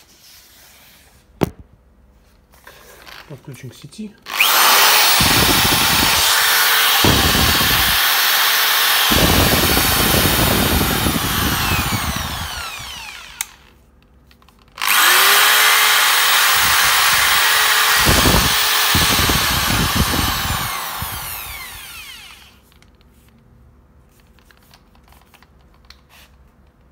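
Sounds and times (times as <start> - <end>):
electric drill running: 4.3 - 13.7, 14.8 - 22.6.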